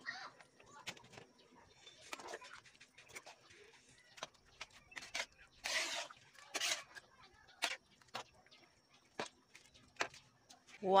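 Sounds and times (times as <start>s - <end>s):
ladle stirring thick sauce: 1.7s - 10.8s
ladle scraping pan: 4.9s - 7.8s.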